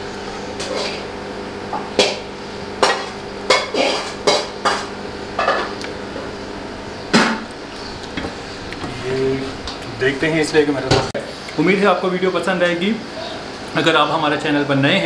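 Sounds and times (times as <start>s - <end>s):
metal spoon scraping a wok: 0.4s - 1.1s.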